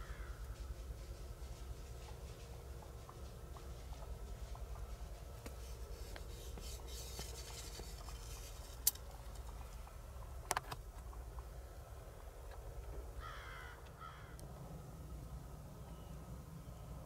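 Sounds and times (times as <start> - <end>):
gear rustling: 5.9 - 9.7.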